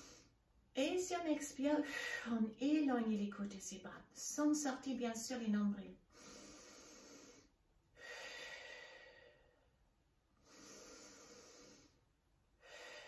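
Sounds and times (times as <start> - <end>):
woman breathing deeply: 0.0 - 0.4, 6.1 - 13.0.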